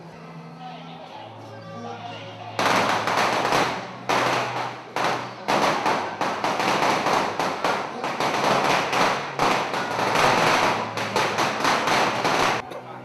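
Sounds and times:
firecrackers crackling: 2.6s - 12.6s.

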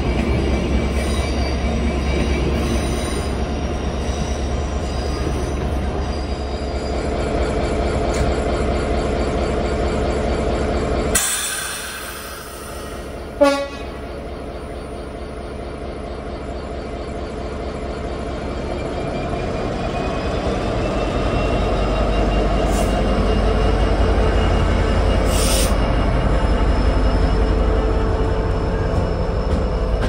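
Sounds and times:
diesel locomotive engine running: 0.0s - 30.0s
train horn toot: 13.4s - 14.0s.

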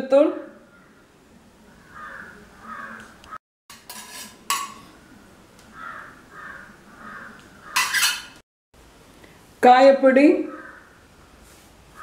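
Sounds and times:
steel bowls clinking: 3.7s - 5.0s.

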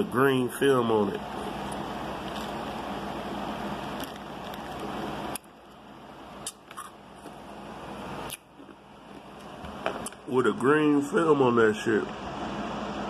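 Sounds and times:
steady hum and hiss: 0.0s - 13.0s.

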